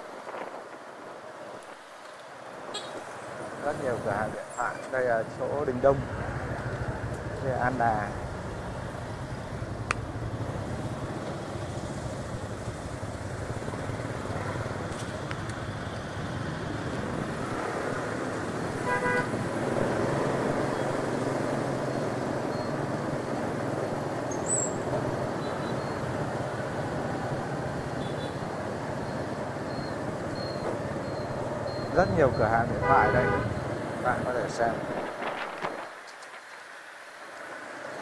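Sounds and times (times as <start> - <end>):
motorbike traffic: 2.0 - 38.0
scooter engine hum: 6.0 - 32.8.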